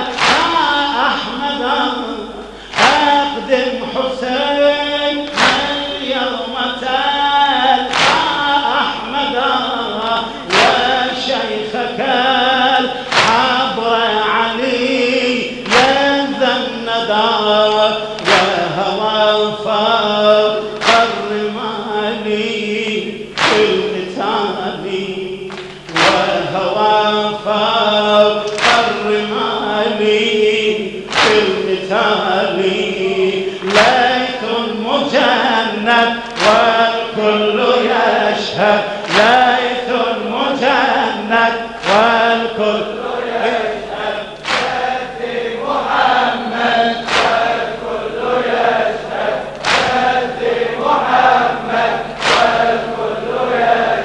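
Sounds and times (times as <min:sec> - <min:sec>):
sharp slap-like beat: 0:00.0 - 0:01.4, 0:02.7 - 0:03.4, 0:05.3 - 0:06.0, 0:07.9 - 0:09.0, 0:10.5 - 0:11.3, 0:13.1 - 0:13.8, 0:15.6 - 0:16.1, 0:18.1 - 0:18.8, 0:20.7 - 0:21.4, 0:23.3 - 0:24.2, 0:25.4 - 0:26.5, 0:28.4 - 0:29.3, 0:31.1 - 0:31.9, 0:39.0 - 0:39.4, 0:41.8 - 0:42.2, 0:44.2 - 0:44.9, 0:46.9 - 0:47.7, 0:49.3 - 0:50.4, 0:51.2 - 0:52.9
men chanting through microphone: 0:00.0 - 0:54.0.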